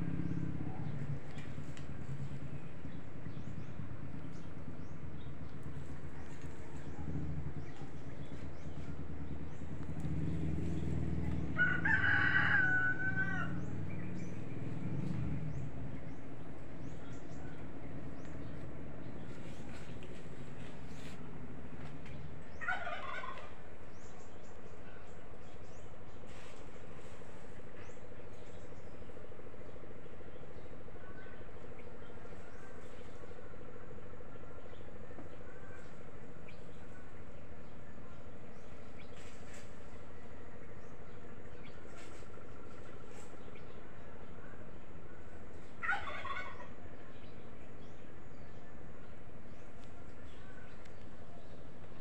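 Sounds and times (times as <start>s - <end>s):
low steady rumble: 0.0s - 52.0s
rooster crowing: 11.4s - 13.9s.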